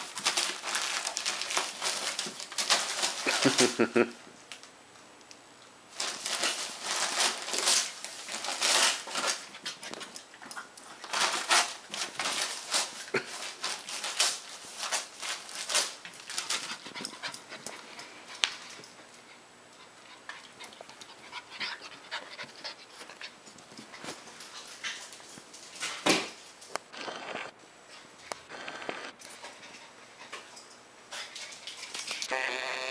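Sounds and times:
puppy panting: 19.2s - 23.4s.

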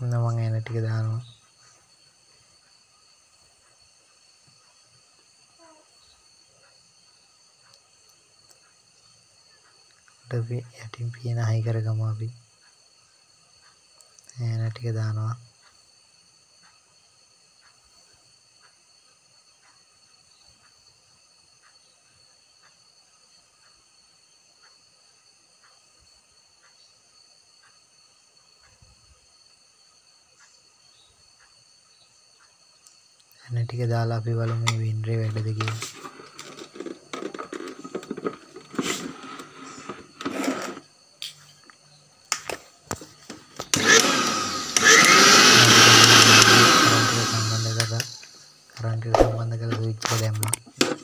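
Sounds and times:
faint high hiss: 0.0s - 36.5s
blender handling clicks and knocks: 35.6s - 40.8s, 42.3s - 48.2s, 50.4s - 51.0s
blender motor running: 43.6s - 48.3s.

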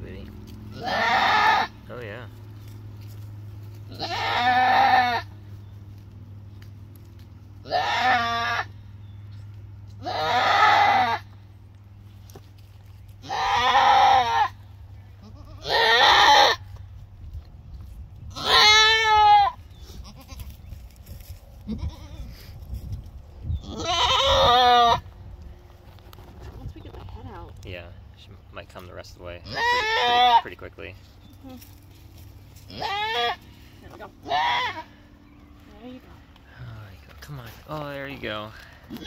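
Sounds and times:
goat bleating loudly: 0.7s - 1.8s, 3.9s - 5.4s, 7.6s - 8.8s, 10.0s - 11.4s, 13.2s - 14.6s, 15.2s - 16.7s, 18.3s - 20.5s, 21.7s - 22.4s, 23.6s - 25.0s, 29.4s - 30.5s, 32.7s - 35.1s.

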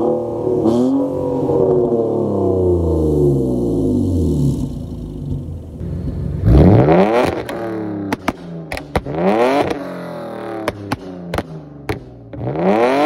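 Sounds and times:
car engine revving: 0.0s - 13.0s
exhaust pops and cracks: 7.2s - 9.8s, 10.6s - 12.4s.

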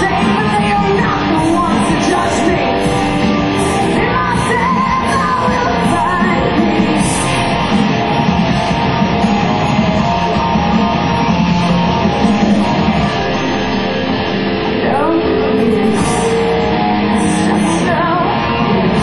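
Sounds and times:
woman singing: 0.0s - 7.5s, 14.8s - 19.0s
bass guitar: 0.0s - 19.0s
distorted electric guitars: 0.0s - 19.0s
drums: 0.0s - 19.0s.

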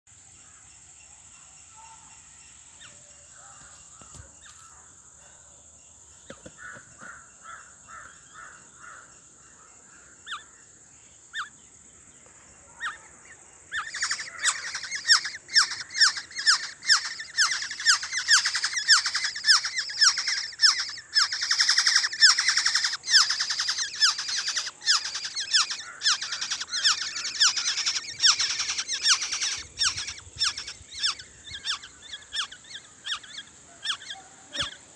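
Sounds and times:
nestlings chirping shrilly: 12.8s - 34.9s.

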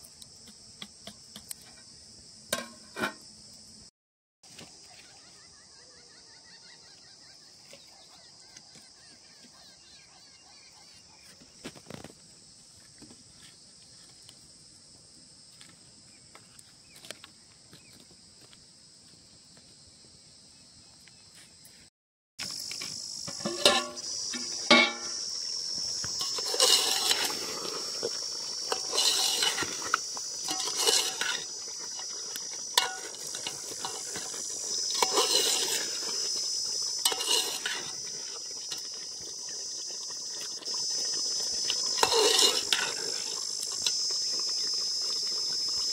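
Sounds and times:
ladle scraping and stirring pot: 2.6s - 3.2s, 23.3s - 44.5s
metal clanking against cooking pot: 2.6s - 3.2s, 23.3s - 25.2s, 30.4s - 31.4s, 32.8s - 34.2s, 37.0s - 37.8s
insects trilling: 4.5s - 45.9s.

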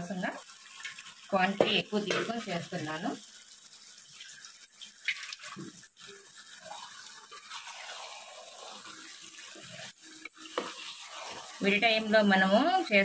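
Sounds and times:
faint sizzle: 0.0s - 13.0s
spoon stirring in pot: 0.6s - 2.5s, 5.5s - 13.0s.

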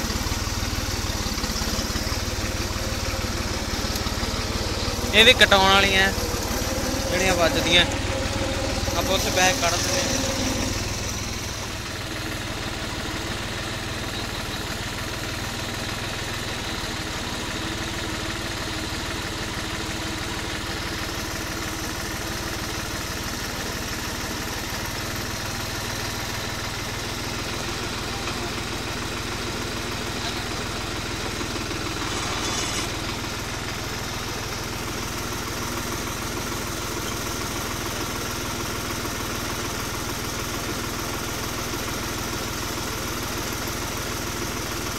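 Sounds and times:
tractor diesel engine idling: 0.0s - 44.9s
short burst of noise: 31.7s - 33.4s.

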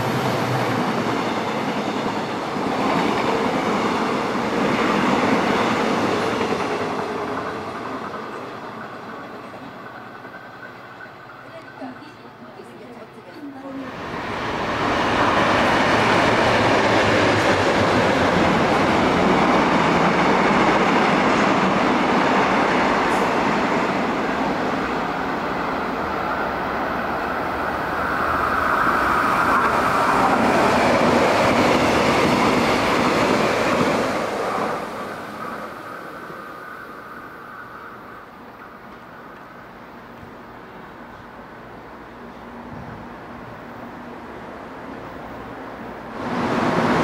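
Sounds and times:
train wheels clattering on track: 0.0s - 25.7s.

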